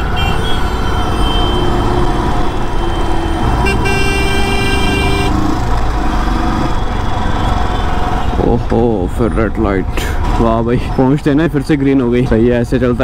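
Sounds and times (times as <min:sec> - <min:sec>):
motorcycle engine and road rumble: 0:00.0 - 0:13.0
horn toots: 0:02.8 - 0:05.5.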